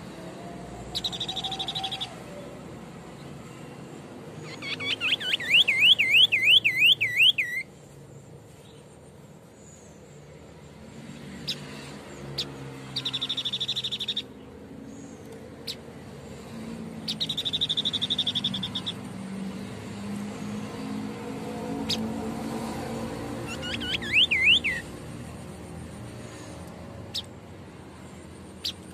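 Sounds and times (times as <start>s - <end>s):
caged bird singing: 0.0s - 28.9s.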